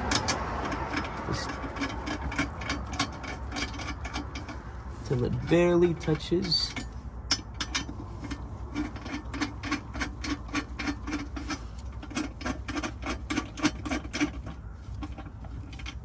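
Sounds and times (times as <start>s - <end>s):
hand ratchet clicking: 0.0s - 4.6s.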